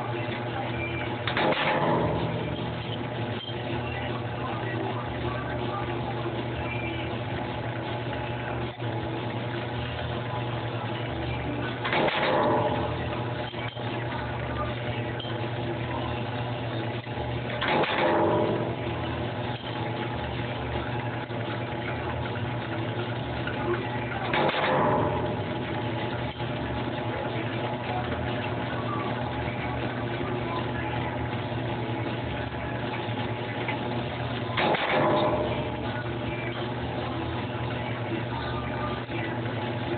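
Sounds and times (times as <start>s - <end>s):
stamping press motor hum: 0.0s - 39.9s
stamping press surge: 1.2s - 2.6s, 11.8s - 12.8s, 17.6s - 18.7s, 24.3s - 25.6s, 34.6s - 35.8s.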